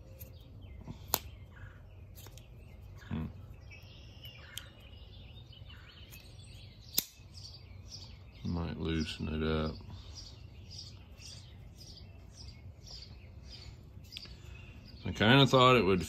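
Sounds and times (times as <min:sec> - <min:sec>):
faint bird chirps: 0:00.0 - 0:16.0
folding knife blade clicking: 0:06.9 - 0:07.2.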